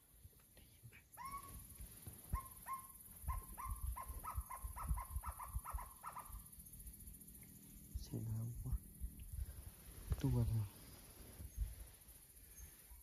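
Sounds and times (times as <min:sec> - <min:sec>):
animal calling with upswept notes: 0:00.9 - 0:07.8.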